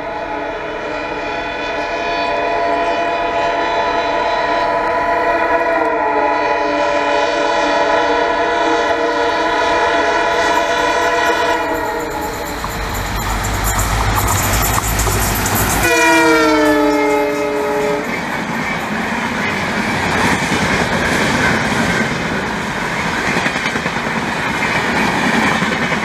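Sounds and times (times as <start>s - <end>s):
locomotive air horn: 0.0s - 18.2s
train wheels on rails: 8.0s - 26.0s
locomotive engine rumble: 10.4s - 23.3s.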